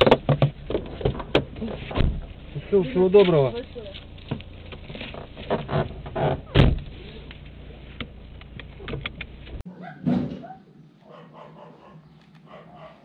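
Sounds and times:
clunks and rustles: 0.0s - 2.5s, 3.2s - 10.6s
car engine idling: 0.0s - 9.6s
car door shutting: 5.0s - 6.9s.

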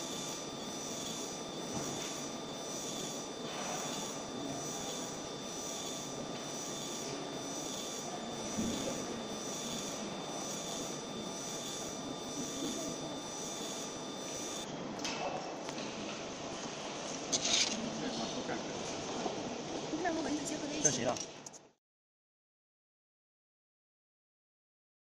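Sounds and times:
laser machine hiss: 0.0s - 14.6s
faint regular pulse: 0.0s - 14.7s
high steady tones: 0.0s - 14.7s.

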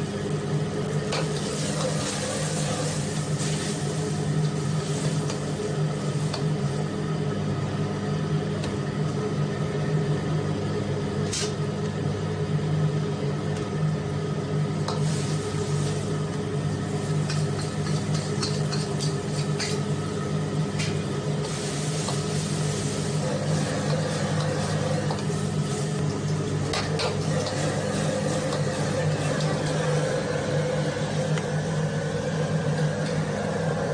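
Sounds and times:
stove hum: 0.0s - 33.9s
food sizzling in a wok: 0.8s - 6.9s, 14.7s - 33.9s
ladle scraping a wok: 1.1s - 5.4s, 16.9s - 19.9s, 20.8s - 26.0s, 26.7s - 30.3s.

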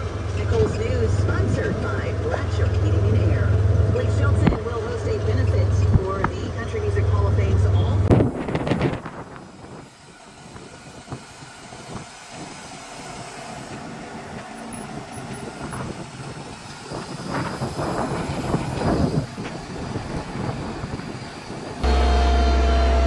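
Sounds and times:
tractor engine running: 0.0s - 23.0s
planter rattling and clanking: 13.6s - 22.9s.

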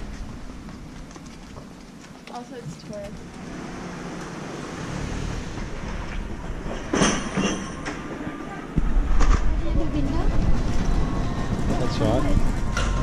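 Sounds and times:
passing vehicle rumble: 2.9s - 13.0s.

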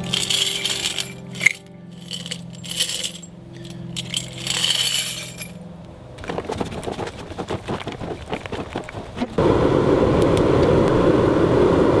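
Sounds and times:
metal casings clinking: 0.0s - 5.6s
steady low hum: 0.0s - 6.2s.

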